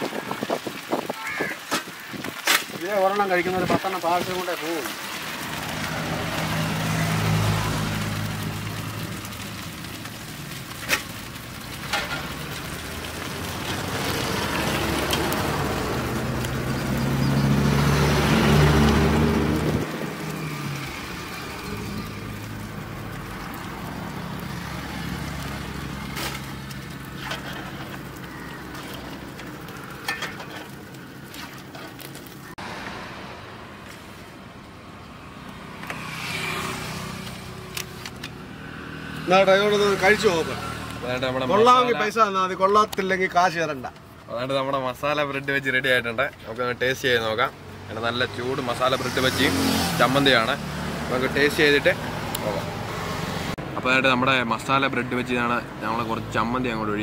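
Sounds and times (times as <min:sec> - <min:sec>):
road traffic: 0:00.0 - 0:57.0
vehicle engine hum: 0:05.1 - 0:41.8.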